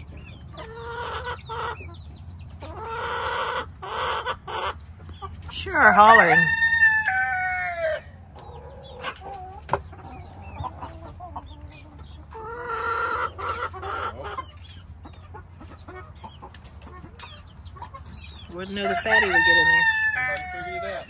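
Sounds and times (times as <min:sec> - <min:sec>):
chickens clucking: 0:00.0 - 0:21.0
rooster crowing: 0:05.8 - 0:08.1, 0:18.8 - 0:21.0.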